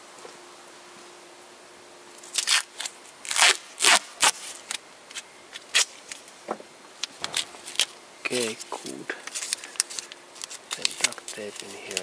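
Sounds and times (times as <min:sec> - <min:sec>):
duct tape ripping: 0:02.2 - 0:06.3, 0:07.0 - 0:12.0.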